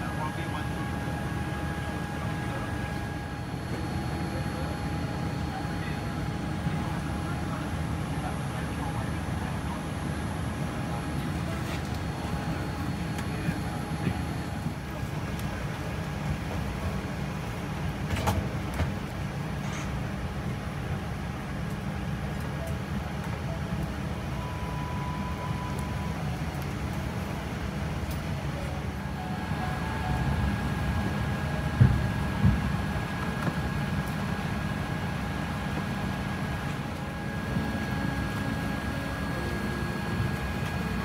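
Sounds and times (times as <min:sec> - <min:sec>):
airliner cabin rumble: 0:00.0 - 0:21.1, 0:23.0 - 0:41.0
faint steady whines: 0:00.0 - 0:41.0.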